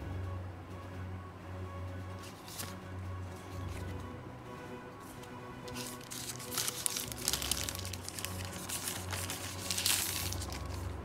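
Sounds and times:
background music: 0:00.0 - 0:11.0
plastic packaging crinkling: 0:02.3 - 0:02.8, 0:05.6 - 0:11.0.

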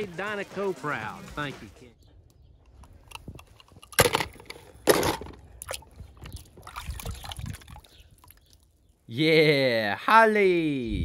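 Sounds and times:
water sloshing: 0:03.4 - 0:08.8.

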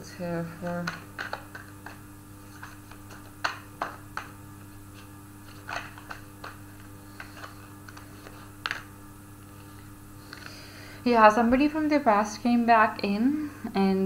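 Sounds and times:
steady low hum: 0:00.0 - 0:14.0
cards clicking and tapping: 0:00.6 - 0:04.4, 0:05.0 - 0:08.9.

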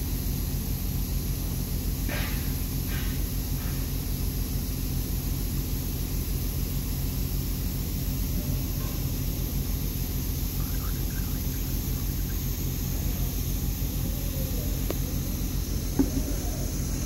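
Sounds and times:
motor droning: 0:07.5 - 0:17.0.

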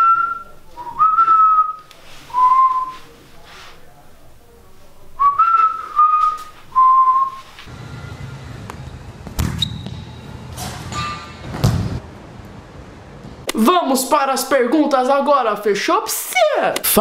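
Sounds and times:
person whistling short notes: 0:00.0 - 0:03.0
ball kicks echoing in hall: 0:07.7 - 0:13.5.

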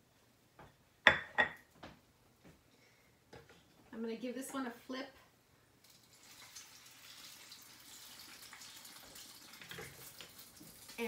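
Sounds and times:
bread frying in hot oil: 0:05.8 - 0:11.0.

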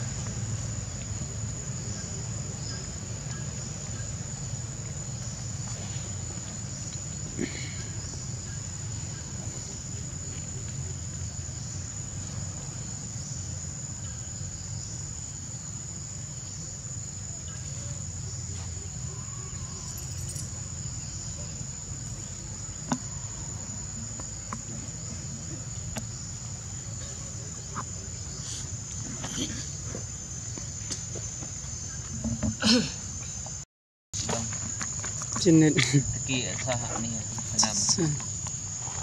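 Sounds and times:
insects high-pitched drone: 0:00.0 - 0:33.6, 0:34.2 - 0:39.0.

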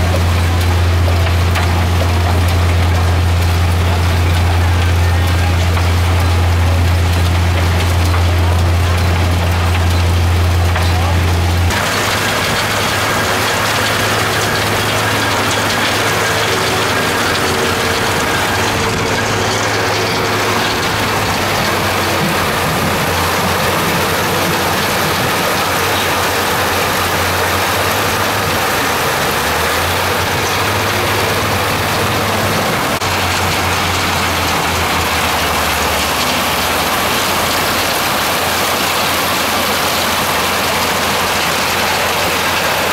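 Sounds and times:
deep hum: 0:00.0 - 0:42.9
mechanical drum rattle: 0:00.0 - 0:42.9
rushing water and gravel: 0:00.0 - 0:42.9.

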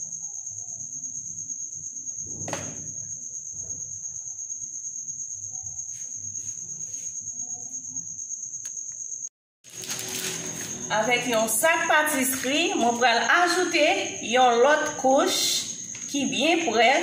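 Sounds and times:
cricket trilling: 0:00.0 - 0:17.0
sharp knock: 0:02.3 - 0:03.0.

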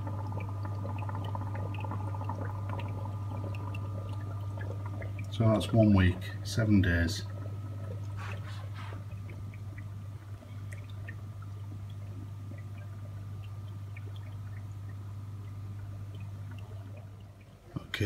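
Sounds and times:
low hum: 0:00.0 - 0:18.0
small drips and pops: 0:00.0 - 0:18.0
water bubbling and trickling: 0:00.0 - 0:18.0.

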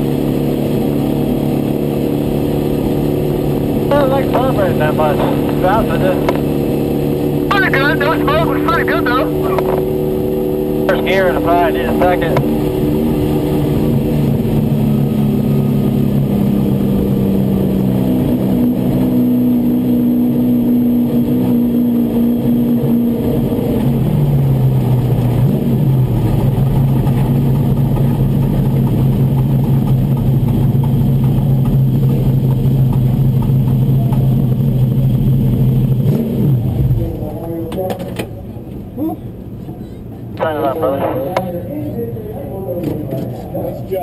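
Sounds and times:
truck engine running: 0:00.0 - 0:21.0.

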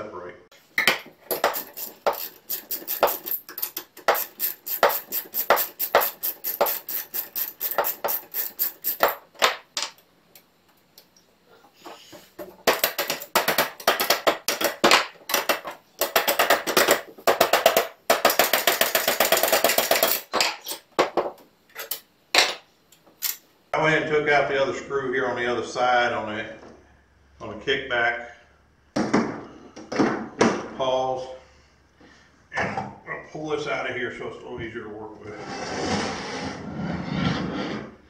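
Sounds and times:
rapid metallic clicking of hand tool: 0:01.3 - 0:09.2.

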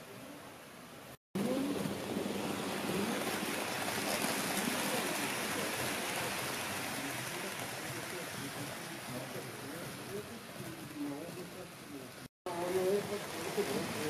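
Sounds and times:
model train rumbling on rails: 0:01.4 - 0:11.9.

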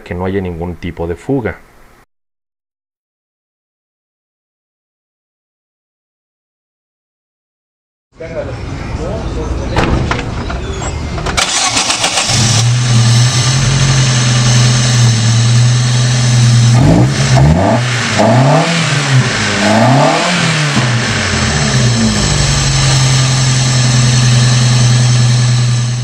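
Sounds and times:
car engine idling and revving: 0:11.2 - 0:26.0.

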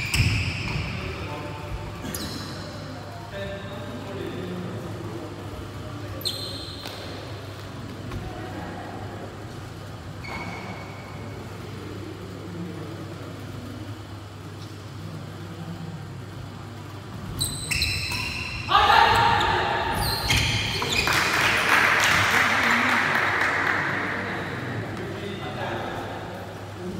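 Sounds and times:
shoe squeaks: 0:00.0 - 0:01.1, 0:02.0 - 0:02.8, 0:06.1 - 0:07.3, 0:10.2 - 0:11.0, 0:17.2 - 0:21.3.

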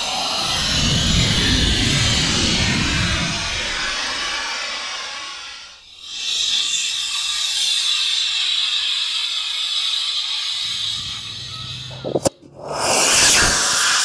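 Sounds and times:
model rocket motor hissing: 0:02.7 - 0:12.1.

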